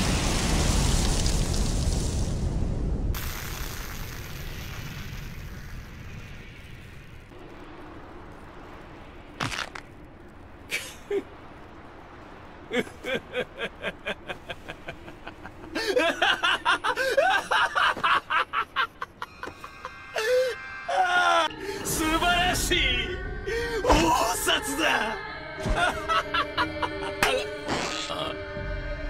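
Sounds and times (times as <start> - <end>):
rumble and hiss: 0.0 - 20.6
man laughing: 10.7 - 11.4, 12.7 - 20.5, 25.6 - 28.4.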